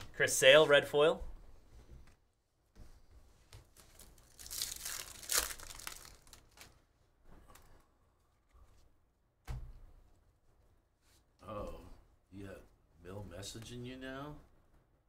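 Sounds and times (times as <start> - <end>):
cards and wrapper crinkling: 3.6 - 6.8.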